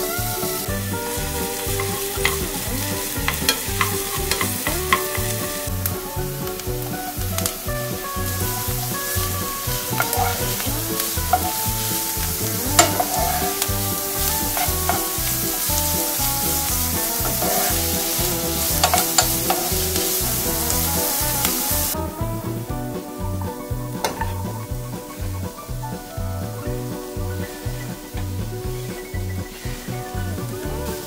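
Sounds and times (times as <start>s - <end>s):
wooden spatula scraping a pan: 0.0s - 22.0s
vegetables sizzling in oil: 0.0s - 22.1s, 23.4s - 31.0s.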